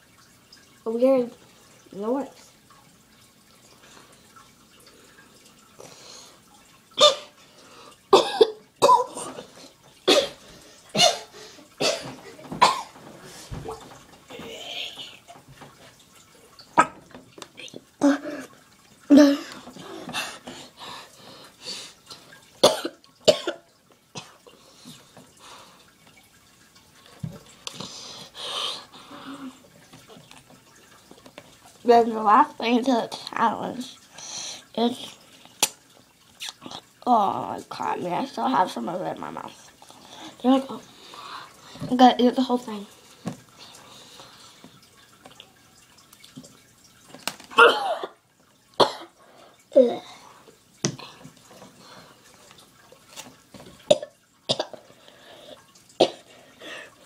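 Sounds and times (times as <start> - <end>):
boy coughing: 8.2 - 9.4, 10.1 - 12.9, 22.6 - 23.6, 47.6 - 48.2, 48.8 - 49.1
mouth clicks and chewing: 36.4 - 36.8.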